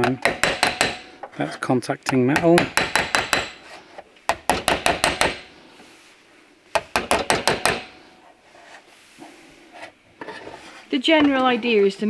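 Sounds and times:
hammer tapping steel panel: 0:00.0 - 0:01.3, 0:02.1 - 0:03.6, 0:04.3 - 0:05.5, 0:06.8 - 0:08.0.

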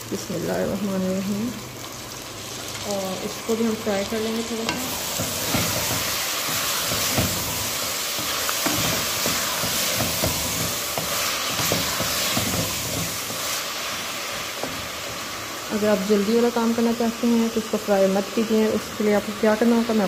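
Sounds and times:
vegetables sizzling in oil: 0:00.0 - 0:20.0
wooden spoon scraping pot: 0:04.6 - 0:13.7.

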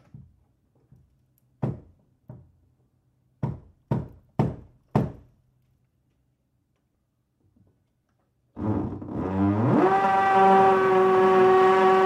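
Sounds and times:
heavy knocks on hard surface: 0:01.6 - 0:02.5, 0:03.4 - 0:05.3.

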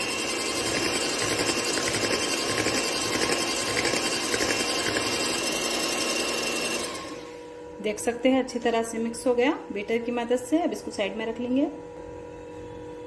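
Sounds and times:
electric hand mixer whining: 0:00.0 - 0:07.6.

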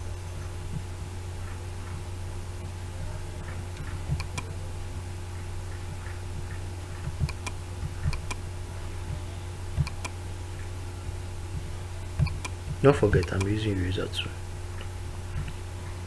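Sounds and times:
low electrical hum: 0:00.0 - 0:16.0
computer mouse clicking: 0:03.8 - 0:04.5, 0:06.0 - 0:08.4, 0:09.8 - 0:10.2, 0:12.2 - 0:13.5.

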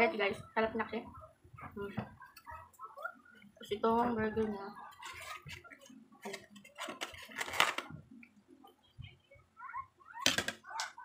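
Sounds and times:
styrofoam container crinkling: 0:04.9 - 0:07.9
plastic rustling: 0:04.9 - 0:08.0.

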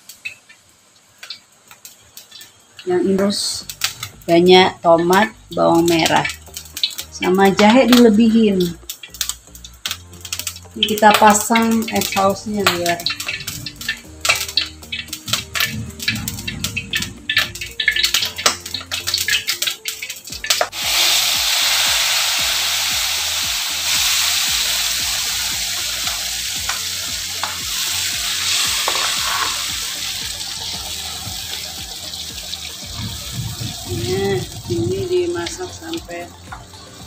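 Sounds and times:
paste sizzling in hot oil: 0:08.3 - 0:37.0.

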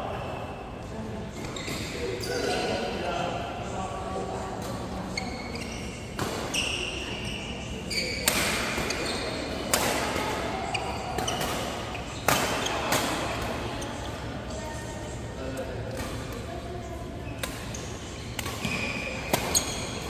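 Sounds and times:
sneakers squeaking on court floor: 0:01.3 - 0:02.9, 0:04.7 - 0:15.3, 0:15.9 - 0:20.0
rackets striking shuttlecock: 0:17.4 - 0:20.0.

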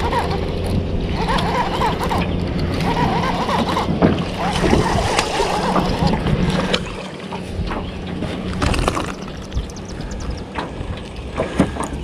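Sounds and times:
fish splashing at surface: 0:04.2 - 0:07.1.

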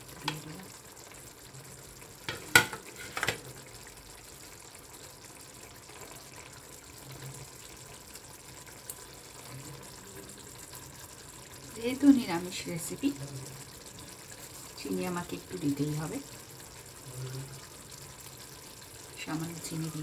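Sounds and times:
gravy bubbling: 0:00.0 - 0:20.0
ladle knocking against pan: 0:02.3 - 0:03.4
metal ladle stirring in a pan: 0:02.3 - 0:03.4.

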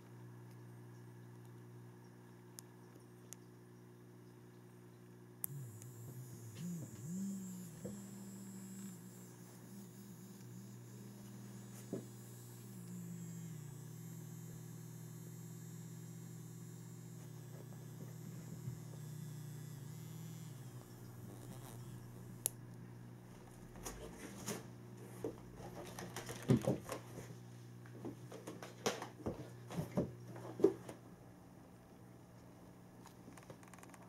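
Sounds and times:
vibrating toy motor buzzing: 0:05.4 - 0:22.6.

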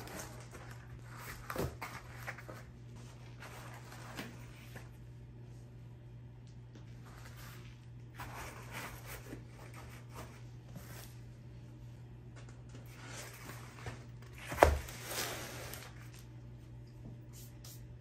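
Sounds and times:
cardboard trays rustling and scraping: 0:00.0 - 0:05.0, 0:06.9 - 0:11.3, 0:12.7 - 0:16.3
steady low hum: 0:00.0 - 0:18.0.

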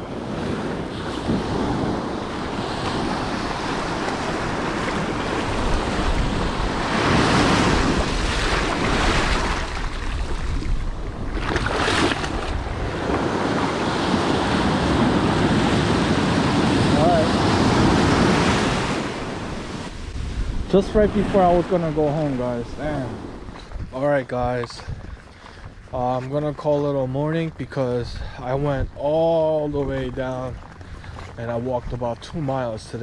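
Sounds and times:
surf washing up a beach: 0:00.0 - 0:25.9
wind on microphone: 0:00.0 - 0:33.0.

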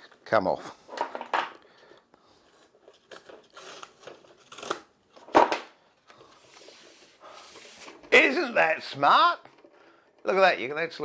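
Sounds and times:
cardboard being cut and torn: 0:03.4 - 0:04.9.

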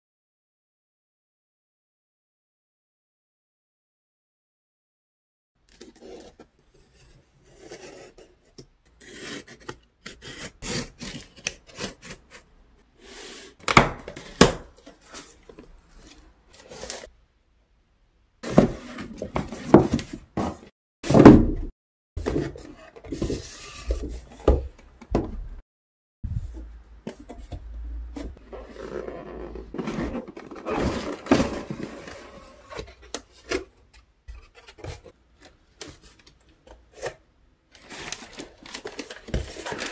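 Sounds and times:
cardboard scraping and knocking: 0:18.4 - 0:25.6, 0:26.3 - 0:33.0.

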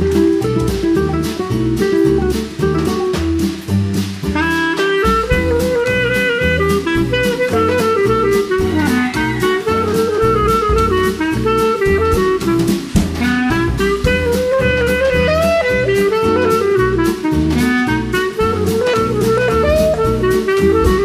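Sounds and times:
steady drum beat: 0:00.0 - 0:21.0
upbeat jazzy music: 0:00.0 - 0:21.0.

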